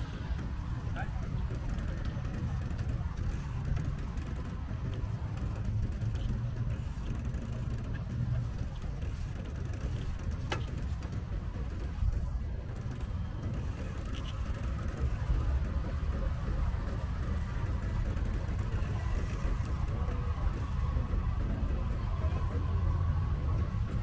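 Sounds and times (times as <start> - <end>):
low rumble of road traffic: 0.0 - 24.0.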